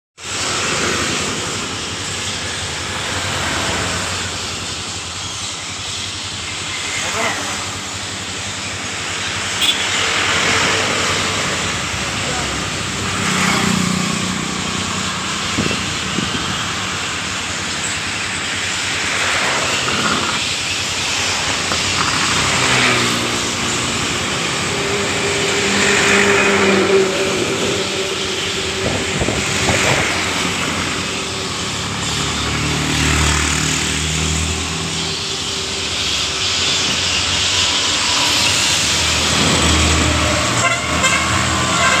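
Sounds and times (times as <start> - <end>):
road traffic rush: 0.2 - 42.0
vehicle horns: 6.9 - 8.3, 9.3 - 11.6, 37.5 - 42.0.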